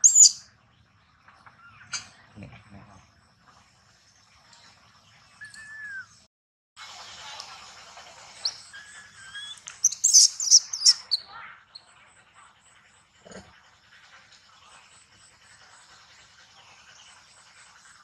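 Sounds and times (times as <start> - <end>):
animal squeals and chirps: 0.0 - 0.4, 8.4 - 11.9.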